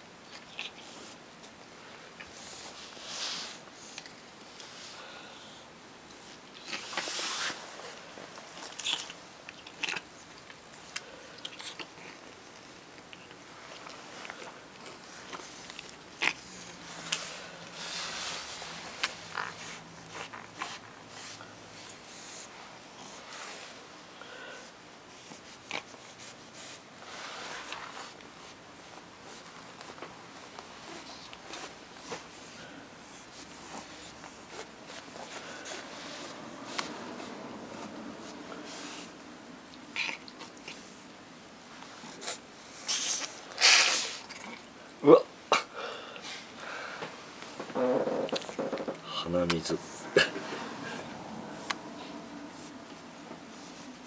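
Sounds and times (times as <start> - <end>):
cat licking and gnawing: 0.3 - 1.2, 6.1 - 17.8, 18.6 - 22.5, 24.6 - 26.8, 27.6 - 41.1, 41.9 - 44.8
cat rustling on carpet: 1.9 - 3.7, 6.7 - 8.7, 16.8 - 23.9.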